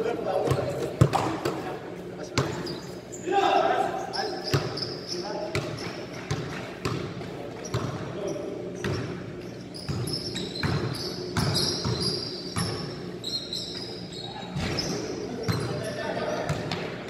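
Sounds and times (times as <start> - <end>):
sneaker squeaks: 0.4 - 1.6, 2.2 - 17.0
basketballs bouncing on hard floor: 5.5 - 8.1, 9.8 - 12.9, 16.4 - 17.0.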